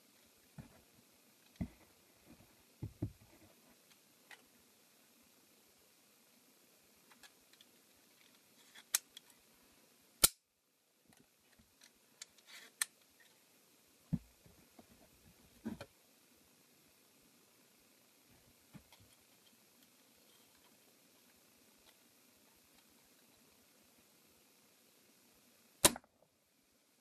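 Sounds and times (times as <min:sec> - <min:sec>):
faint room hiss: 0:00.0 - 0:27.0
loud sharp plastic snap: 0:10.2 - 0:10.4, 0:25.8 - 0:26.1.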